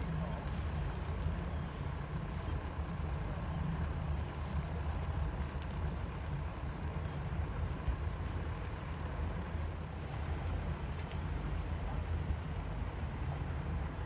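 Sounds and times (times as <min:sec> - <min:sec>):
harbour background hiss: 0:06.0 - 0:14.0.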